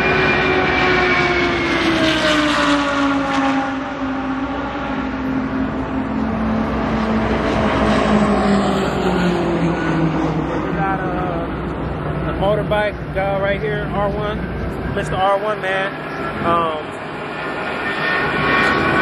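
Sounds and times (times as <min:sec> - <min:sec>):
race car engine passing: 0:00.1 - 0:19.0.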